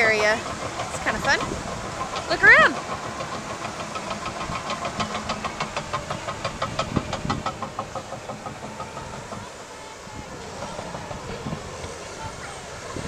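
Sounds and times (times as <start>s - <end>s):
bulldozer engine noise: 0.0s - 13.0s
bulldozer track clanking: 0.0s - 13.0s.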